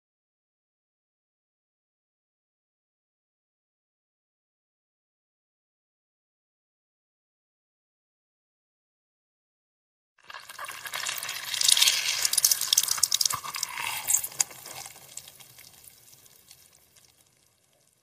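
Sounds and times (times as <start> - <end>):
small crackles: 10.2 - 18.0.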